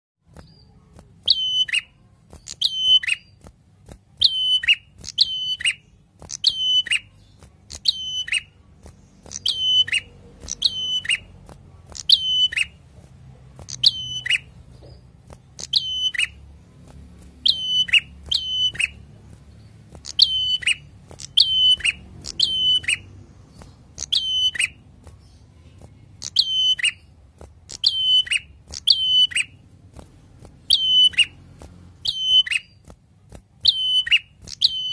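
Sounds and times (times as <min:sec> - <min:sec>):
bird singing high notes: 0:17.4 - 0:19.0, 0:20.1 - 0:23.1.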